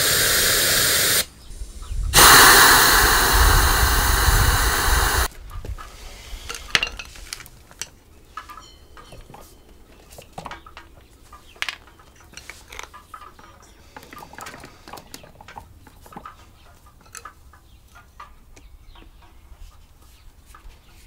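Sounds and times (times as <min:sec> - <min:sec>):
compressed air blow gun hissing: 0:00.0 - 0:05.3.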